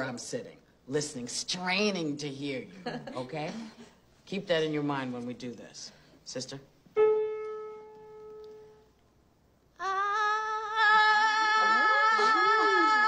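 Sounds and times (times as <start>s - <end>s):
piano note ringing: 7.0s - 8.8s.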